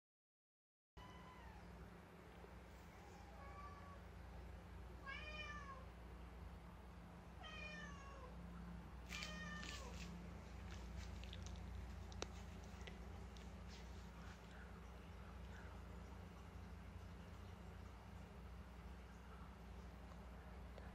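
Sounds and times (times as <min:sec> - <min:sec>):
cat meowing: 0:05.0 - 0:05.8, 0:07.4 - 0:08.3, 0:09.1 - 0:10.0
light clicks and taps: 0:09.1 - 0:15.8.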